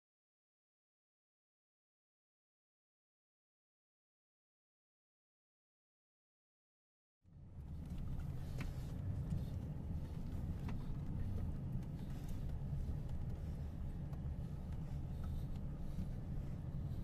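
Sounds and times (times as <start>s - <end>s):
vehicle rumble inside cabin: 7.3s - 17.0s.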